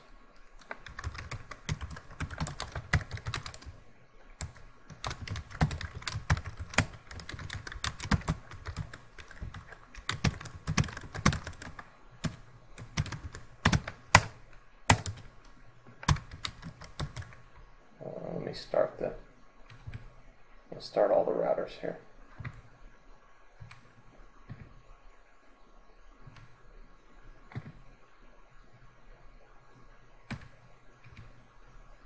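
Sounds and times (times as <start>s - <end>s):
typing on computer keyboard: 0.6s - 3.8s, 4.4s - 17.4s, 27.5s - 27.8s, 30.3s - 31.4s.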